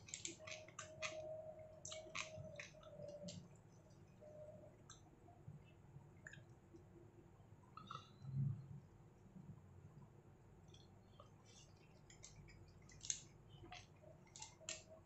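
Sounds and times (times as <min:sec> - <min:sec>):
clicks and rustles of eating: 0:00.0 - 0:05.1, 0:10.6 - 0:15.0.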